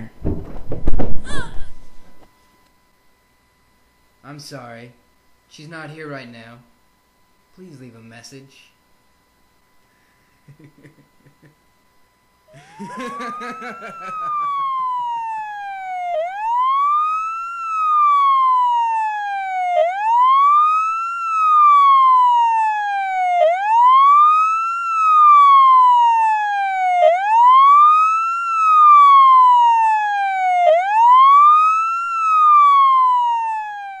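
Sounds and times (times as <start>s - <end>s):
police siren wailing: 12.5s - 34.0s.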